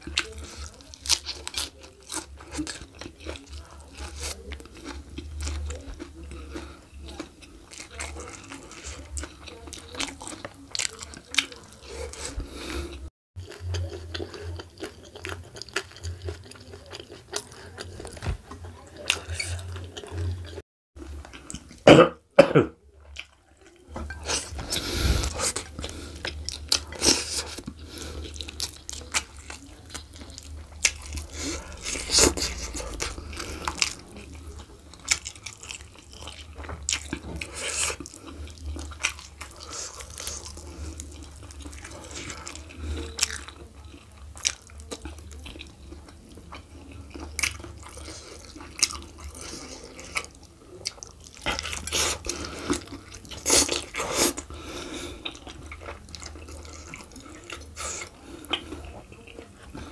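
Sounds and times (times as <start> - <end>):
chewing and lip smacking: 23.0 - 59.9.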